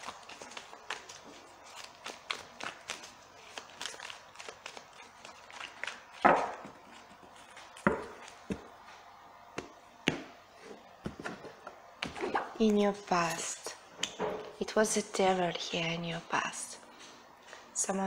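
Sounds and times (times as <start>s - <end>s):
cards shuffled by hand: 0.0s - 8.7s.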